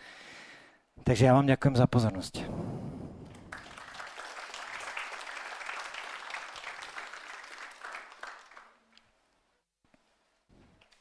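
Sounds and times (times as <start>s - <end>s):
audience applauding: 3.2s - 9.0s.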